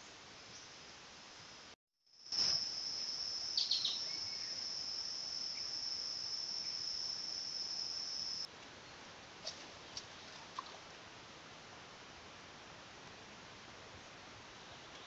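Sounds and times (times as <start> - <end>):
insect trilling: 2.2 - 8.5.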